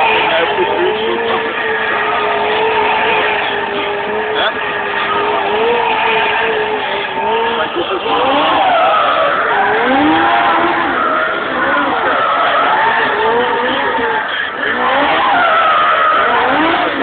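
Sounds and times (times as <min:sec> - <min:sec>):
car engine revving: 0:00.0 - 0:17.0
tyres squealing: 0:00.0 - 0:17.0.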